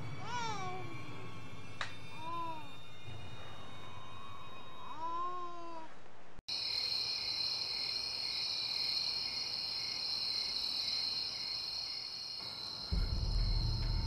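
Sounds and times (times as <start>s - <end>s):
crickets chirping: 6.5s - 14.0s.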